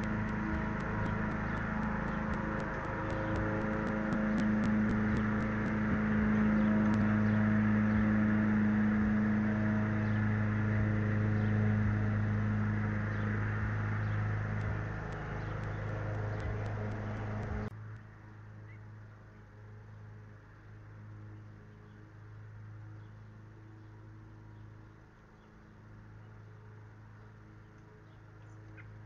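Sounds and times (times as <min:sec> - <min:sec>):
quick ticks: 0:00.0 - 0:08.0, 0:13.1 - 0:18.1
low mechanical hum with hiss: 0:00.0 - 0:29.0.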